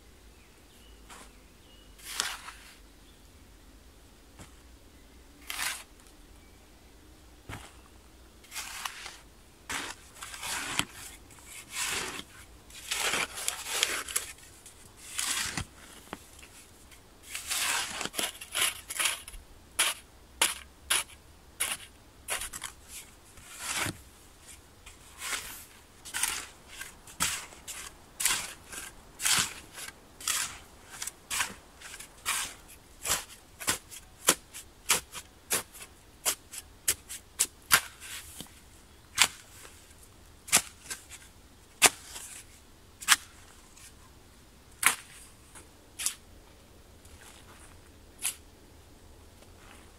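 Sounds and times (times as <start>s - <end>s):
shovel scraping soil: 2.0s - 2.8s, 5.4s - 6.0s, 8.4s - 16.6s, 17.2s - 38.5s, 39.1s - 39.8s, 40.5s - 44.0s, 44.8s - 46.2s, 47.2s - 48.4s
shovel chopping into earth: 26.1s - 38.0s, 44.8s - 45.2s.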